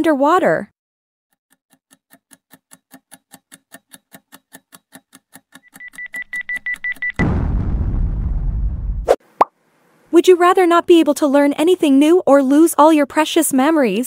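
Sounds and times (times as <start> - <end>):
clock ticking: 1.5 - 7.1
bomb explosion: 7.2 - 9.2.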